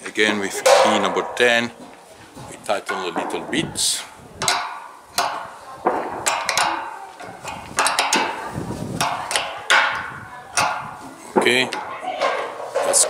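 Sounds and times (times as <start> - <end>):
spanner clinking on metal: 4.4 - 5.6, 6.2 - 11.0.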